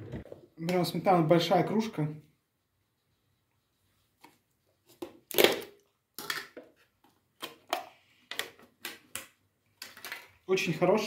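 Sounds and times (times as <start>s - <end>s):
plastic tub clicks and crackles: 5.0s - 10.4s.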